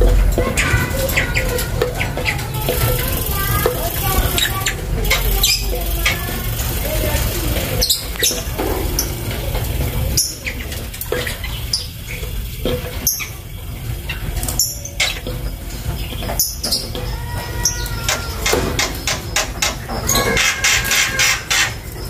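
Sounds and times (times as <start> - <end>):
low rumble: 0.0 - 12.7
birds chirping: 0.0 - 22.0.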